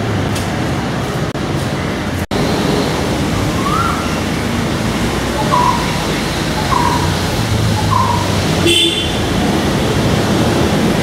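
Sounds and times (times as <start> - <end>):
road traffic noise: 0.0 - 11.0
bird calling short notes: 5.4 - 9.0.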